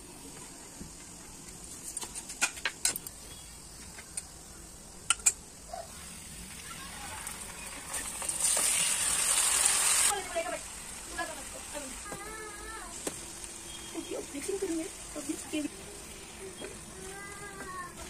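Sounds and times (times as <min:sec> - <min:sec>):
food sizzling in oil: 0:05.9 - 0:18.0.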